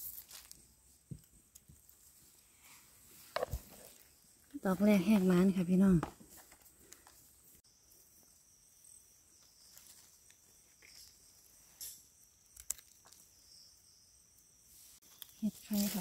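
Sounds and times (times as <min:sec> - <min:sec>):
insects buzzing: 0:03.2 - 0:16.0
leaf litter rustling: 0:15.1 - 0:16.0.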